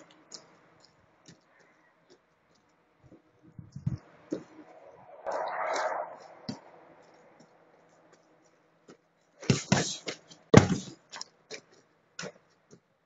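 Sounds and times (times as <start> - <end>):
punching bag thuds: 10.6 - 10.9.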